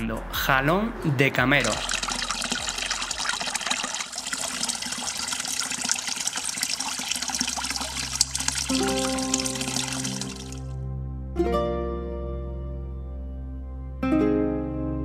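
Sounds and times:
fountain water splashing: 1.6 - 10.7
soft music: 7.6 - 15.0.

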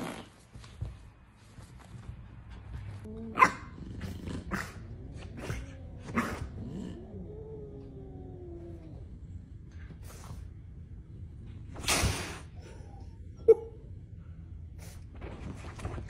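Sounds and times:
dog barking: 3.3 - 3.8.

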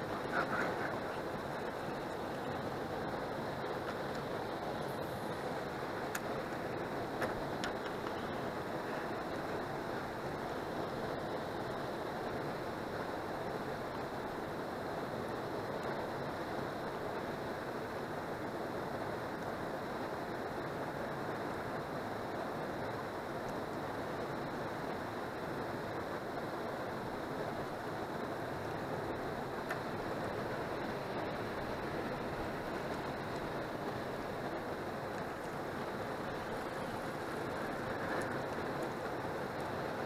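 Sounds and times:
river water rushing: 0.0 - 40.0.

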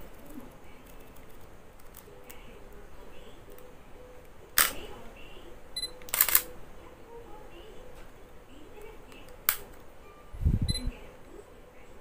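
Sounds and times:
camera shutter click: 4.6 - 4.8, 6.0 - 6.5.

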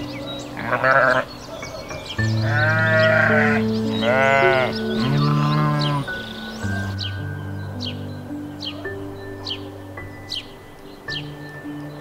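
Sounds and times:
calm background music: 0.0 - 12.0
sheep bleating: 0.6 - 1.3, 2.3 - 6.3.

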